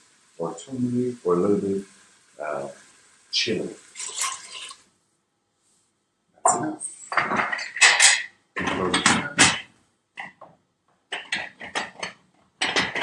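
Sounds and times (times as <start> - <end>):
pressure cooker lid clattering: 11.2 - 13.0.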